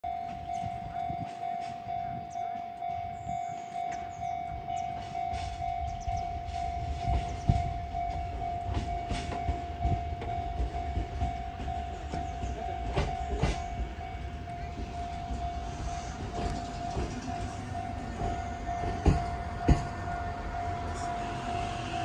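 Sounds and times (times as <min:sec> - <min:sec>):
level-crossing warning bell: 0:00.0 - 0:22.0
train rumbling: 0:00.0 - 0:22.0
wheels clicking over rail joints: 0:05.0 - 0:20.7.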